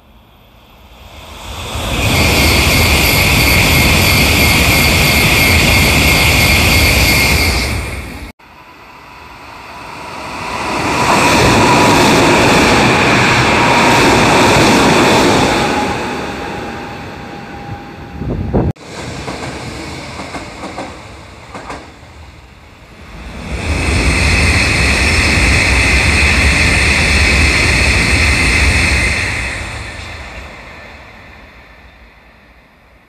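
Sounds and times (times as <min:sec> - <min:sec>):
loud train noise: 0:00.0 - 0:33.0
train wheels running: 0:18.8 - 0:22.1.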